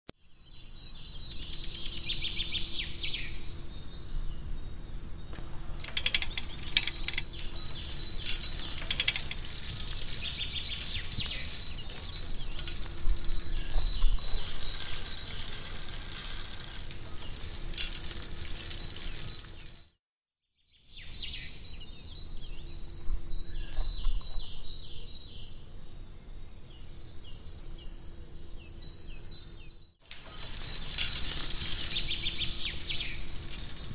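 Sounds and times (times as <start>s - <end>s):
birds chirping: 0.4s - 19.9s, 20.9s - 33.9s
mechanical clicks and rattles: 5.8s - 19.9s, 30.1s - 33.9s.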